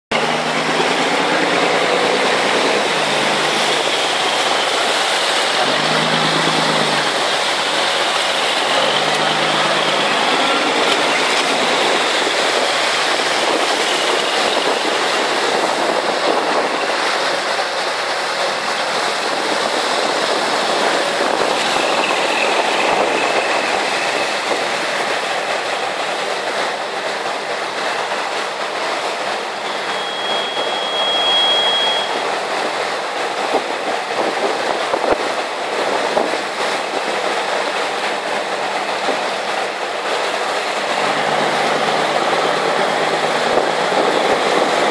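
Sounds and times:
boat engines running: 0.1s - 44.9s
water rushing past hulls: 0.1s - 44.9s
wind on microphone: 10.3s - 17.4s, 18.8s - 25.1s, 33.4s - 37.1s, 42.0s - 44.9s.

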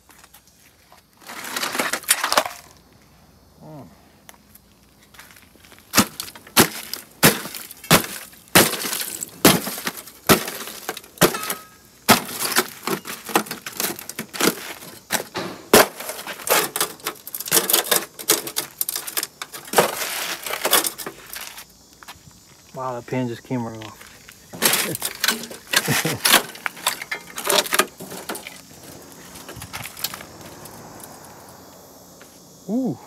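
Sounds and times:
rusted sheet metal cracking: 5.9s - 21.6s, 24.5s - 30.3s.

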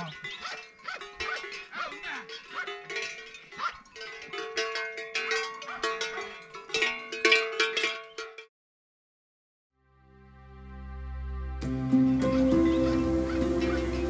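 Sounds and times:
livestock bells clanking: 0.0s - 8.5s.

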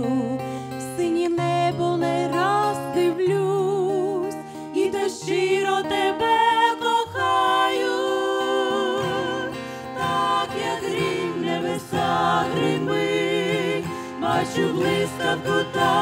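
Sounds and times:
acoustic guitar: 0.0s - 16.0s
group singing in harmony: 4.8s - 16.0s.

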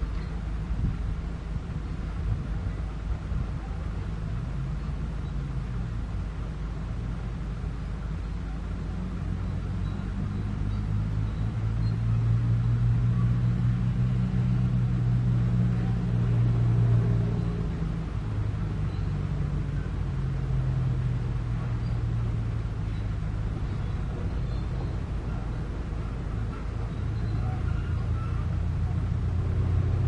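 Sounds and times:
excavator diesel engine running: 14.6s - 30.0s.

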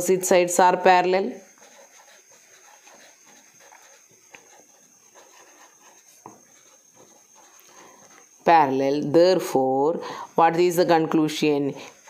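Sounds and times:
marker scratching on paper: 1.0s - 8.5s.

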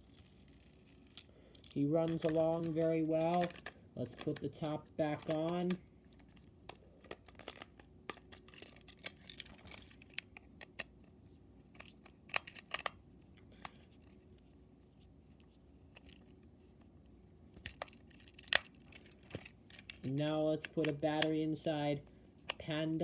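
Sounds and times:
plastic clicks and scrapes: 1.2s - 14.5s, 15.3s - 16.9s, 17.6s - 21.3s
screwdriver turning screw: 1.7s - 5.8s.

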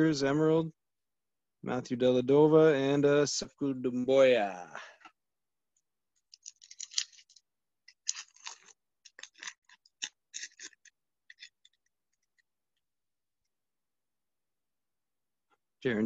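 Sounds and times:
foil wrapper crinkling and tearing: 8.0s - 11.5s.

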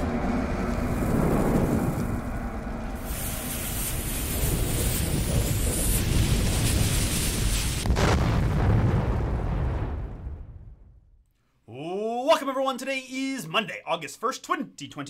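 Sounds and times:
low rumble: 0.0s - 11.3s
fuse sizzling hiss: 0.6s - 7.8s.

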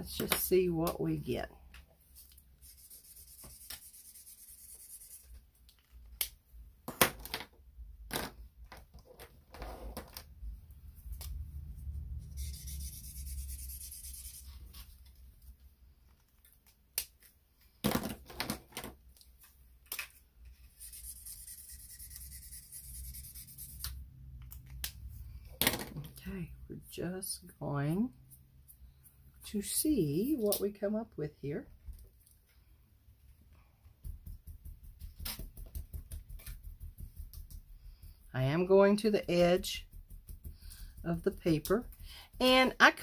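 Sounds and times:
marker scratching on cardstock: 2.6s - 5.3s, 12.3s - 14.8s, 20.6s - 24.0s.

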